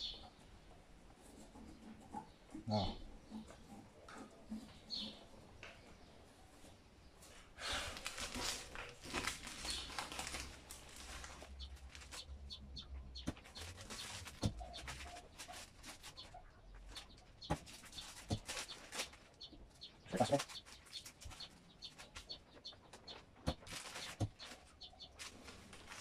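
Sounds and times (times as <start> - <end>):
plastic film crinkling: 7.8 - 12.6, 13.3 - 16.3, 16.9 - 19.6, 23.5 - 26.0.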